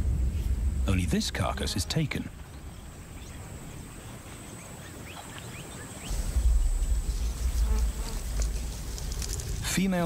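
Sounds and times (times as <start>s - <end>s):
deep low rumble: 0.0s - 1.4s, 6.1s - 9.8s
high insect buzz: 6.1s - 9.7s.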